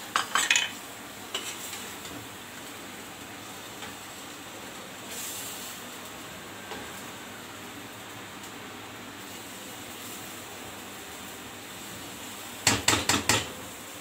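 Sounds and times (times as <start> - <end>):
curry sizzling in a pan: 0.0 - 14.0
spoon scraping a pan: 1.3 - 1.9.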